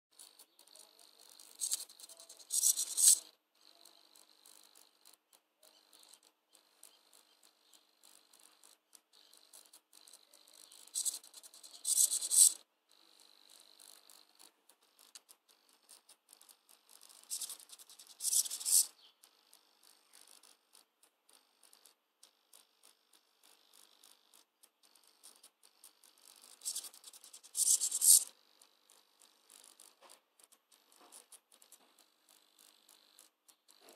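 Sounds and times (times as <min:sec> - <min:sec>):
small ticks: 0:00.1 - 0:33.9
faint high servo buzz: 0:00.9 - 0:04.7, 0:10.4 - 0:12.6, 0:17.2 - 0:18.9, 0:26.4 - 0:28.4
servo motor whirring: 0:26.6 - 0:28.3.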